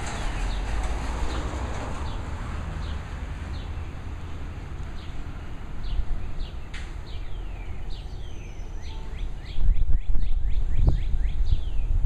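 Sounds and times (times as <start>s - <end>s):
bird chirping: 5.0s - 12.0s.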